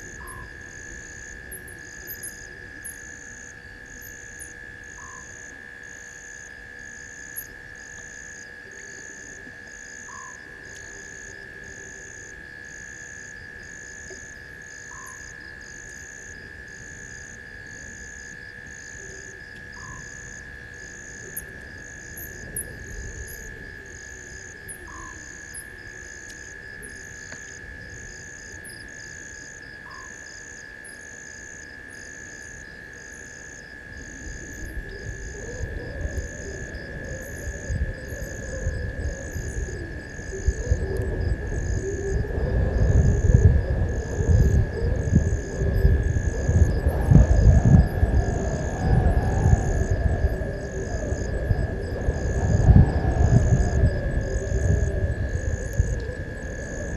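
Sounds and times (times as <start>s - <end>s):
insects trilling: 0.0s - 56.9s
low rumbling noise: 34.2s - 56.9s.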